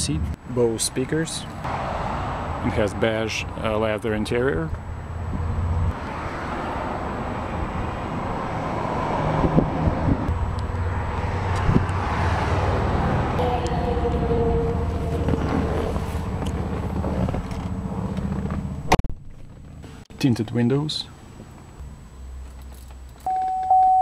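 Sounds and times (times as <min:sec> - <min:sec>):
low engine rumble: 0:09.4 - 0:23.2
faint held high tone: 0:13.4 - 0:17.0, 0:23.3 - 0:24.0.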